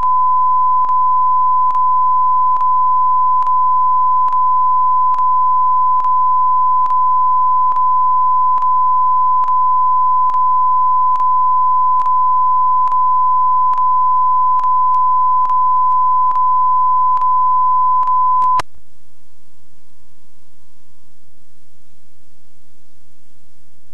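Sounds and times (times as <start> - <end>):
pure test tone: 0.0 - 18.6
faint clicks: 4.2 - 4.4, 9.4 - 9.6, 11.1 - 11.3, 12.0 - 12.2, 14.6 - 16.5
blank tape static hiss: 13.7 - 23.9.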